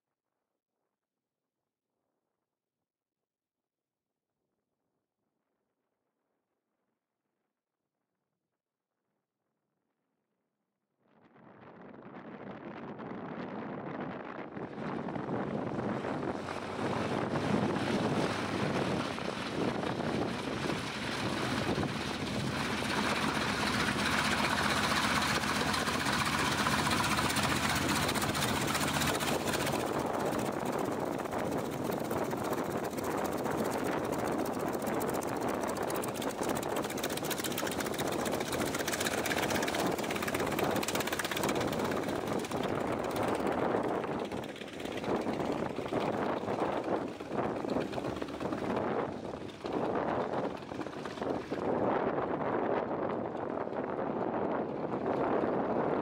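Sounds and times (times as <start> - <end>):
propeller plane engine running: 11.6 - 56.0.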